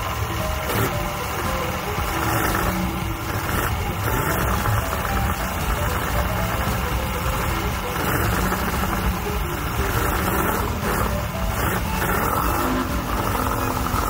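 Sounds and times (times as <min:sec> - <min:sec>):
outboard engine idling: 0:00.0 - 0:14.0.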